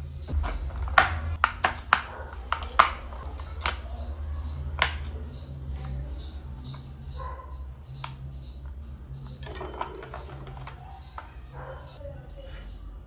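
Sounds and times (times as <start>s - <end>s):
plastic clicks and taps: 0.4s - 4.0s, 4.7s - 6.0s, 9.4s - 11.3s.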